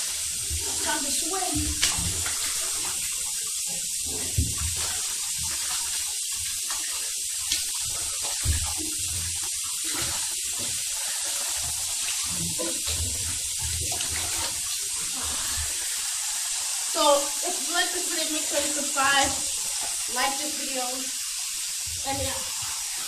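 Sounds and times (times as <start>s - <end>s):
bathwater sloshing: 0.0s - 23.0s
steady hiss: 0.0s - 23.0s.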